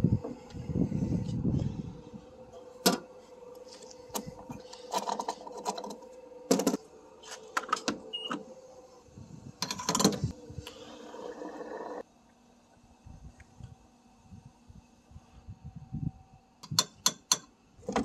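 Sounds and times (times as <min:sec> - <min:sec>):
gas pump hum: 0:00.0 - 0:12.0
pump handling clicks and clunks: 0:02.8 - 0:03.1, 0:04.1 - 0:06.8, 0:09.6 - 0:10.3, 0:16.6 - 0:18.0.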